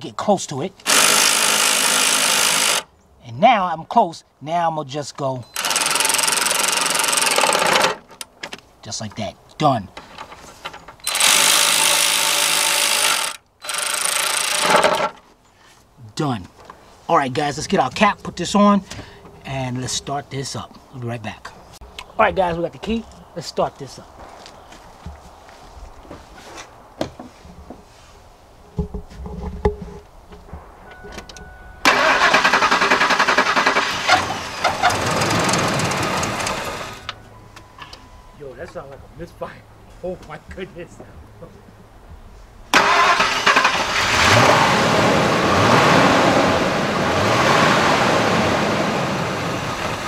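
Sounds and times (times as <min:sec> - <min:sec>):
cordless power tool running: 0:00.8 - 0:02.9, 0:05.6 - 0:07.9, 0:11.1 - 0:15.1
engine starter cranking: 0:00.8 - 0:02.9, 0:05.6 - 0:08.2, 0:10.2 - 0:15.2, 0:31.2 - 0:37.2, 0:42.8 - 0:44.8.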